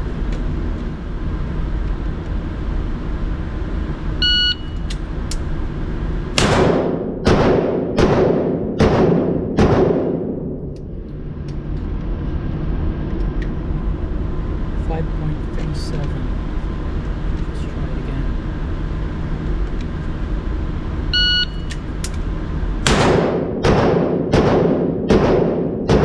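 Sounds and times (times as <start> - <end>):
shot timer beep: 4.2 - 4.9, 21.2 - 21.7
pistol shots echoing indoors: 6.4 - 10.6, 22.8 - 26.0.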